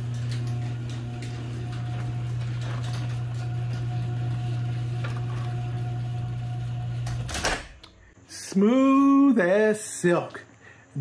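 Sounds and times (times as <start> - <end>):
garage door opener running: 0.0 - 8.1.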